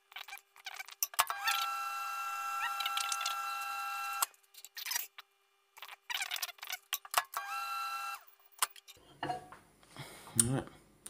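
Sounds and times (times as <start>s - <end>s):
microwave oven whirring: 1.3s - 4.3s, 7.3s - 8.3s.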